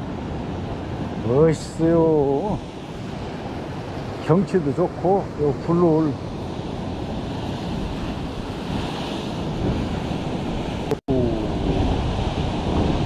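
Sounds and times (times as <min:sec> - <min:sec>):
wind buffeting microphone: 0:06.2 - 0:13.0
surf breaking against rocks: 0:06.7 - 0:13.0.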